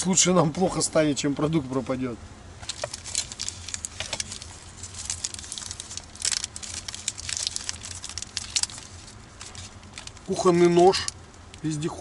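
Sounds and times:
low steady hum: 0.0 - 12.0
wrapper crinkling and tearing: 2.6 - 11.7.

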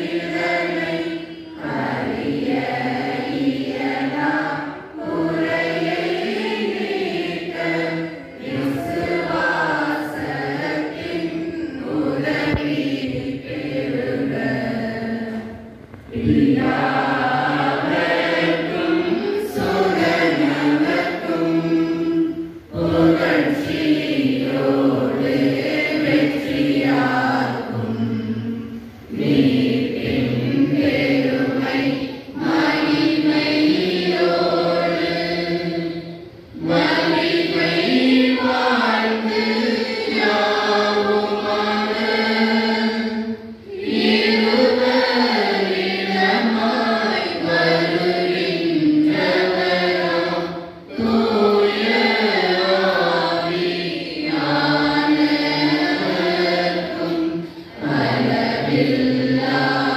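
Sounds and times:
group singing a hymn: 0.0 - 59.9.

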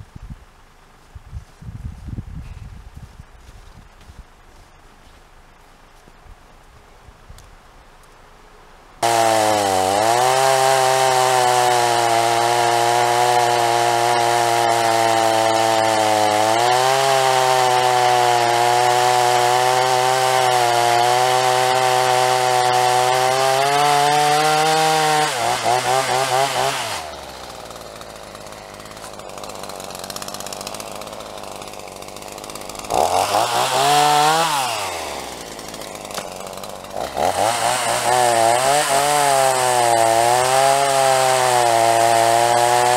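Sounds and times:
chainsaw cutting wood: 9.0 - 42.9.

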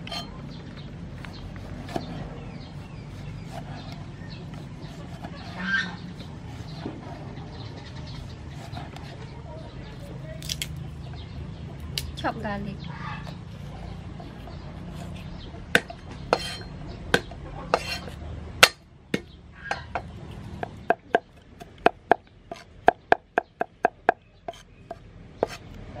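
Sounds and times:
cleaver chopping on wooden block: 15.7 - 25.6.

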